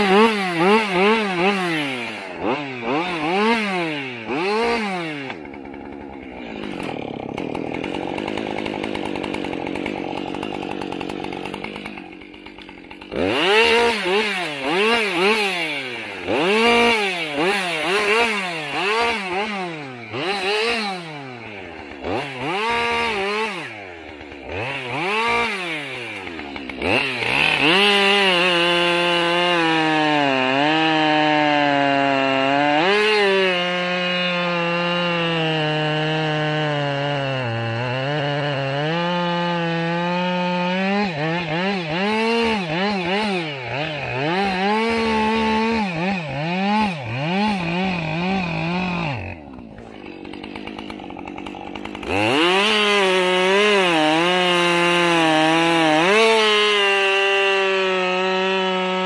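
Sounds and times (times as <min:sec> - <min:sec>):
chainsaw revving: 0:00.0 - 0:59.0.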